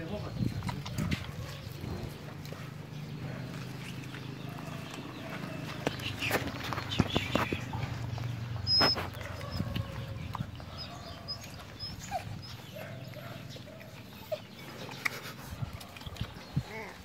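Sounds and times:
puppies suckling clicks and squeaks: 0:00.0 - 0:17.0.

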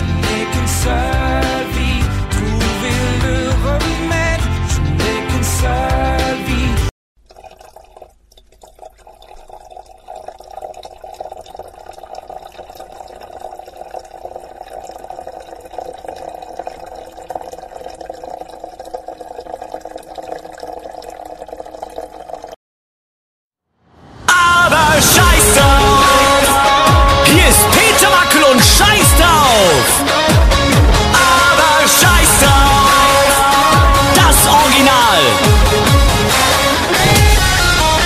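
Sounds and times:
liquid pouring and splashing: 0:07.2 - 0:22.6.

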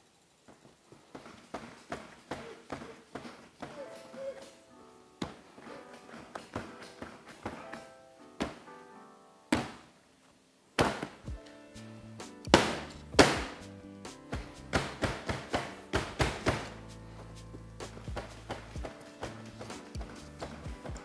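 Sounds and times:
background music: 0:03.7 - 0:21.0
dough thudding on steel bench: 0:12.5 - 0:13.6, 0:14.3 - 0:16.8.

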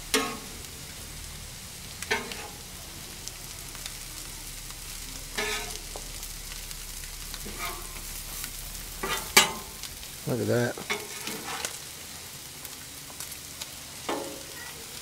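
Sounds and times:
food sizzling on griddle: 0:00.0 - 0:15.0
metal spatulas scraping griddle: 0:00.1 - 0:00.5, 0:05.4 - 0:05.8, 0:07.4 - 0:08.1, 0:09.0 - 0:09.7, 0:10.8 - 0:11.8.

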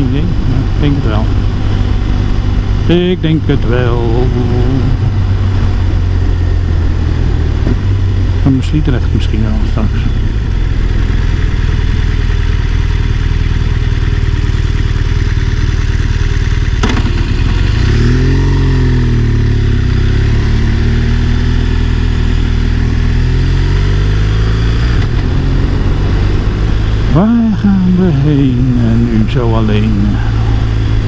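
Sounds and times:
motorcycle engine running: 0:00.0 - 0:31.0
wind rush: 0:24.8 - 0:27.2.

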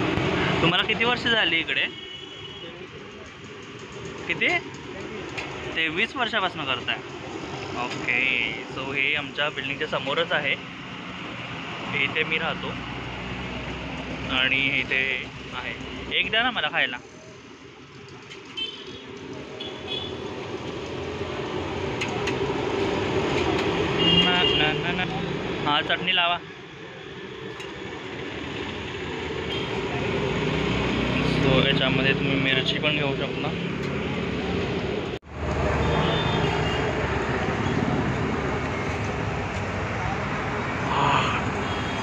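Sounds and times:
street traffic: 0:00.0 - 0:42.0.

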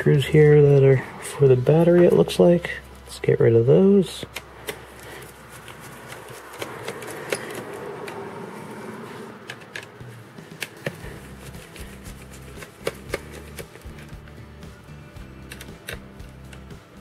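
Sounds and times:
soft rustle of handling: 0:04.9 - 0:07.3
screwdriver clicking on laptop: 0:05.6 - 0:08.2.

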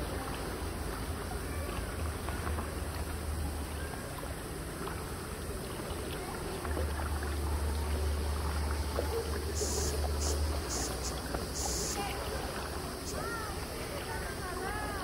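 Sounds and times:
river water rushing: 0:00.0 - 0:15.0
high hiss: 0:09.5 - 0:13.6.

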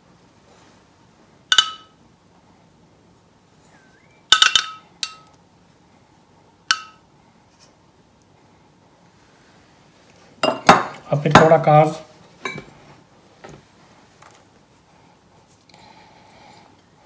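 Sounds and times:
glass bowl clinking: 0:01.5 - 0:01.9, 0:04.4 - 0:05.3, 0:06.7 - 0:07.0, 0:10.4 - 0:11.5.

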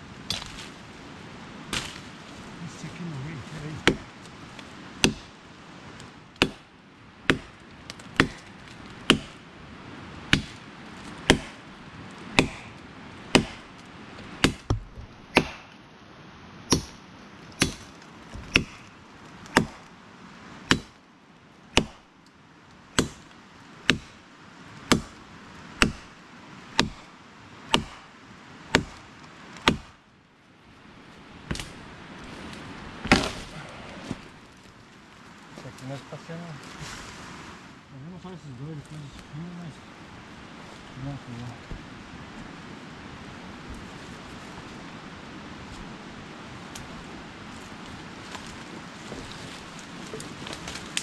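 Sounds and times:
firewood being chopped: 0:00.2 - 0:00.8, 0:01.7 - 0:02.4, 0:03.6 - 0:05.4, 0:06.0 - 0:09.4, 0:10.3 - 0:15.8, 0:16.7 - 0:19.9, 0:20.6 - 0:21.0, 0:21.7 - 0:22.1, 0:22.9 - 0:24.2, 0:24.8 - 0:27.1, 0:27.7 - 0:28.1, 0:28.7 - 0:30.0, 0:31.4 - 0:34.8, 0:47.7 - 0:51.0.

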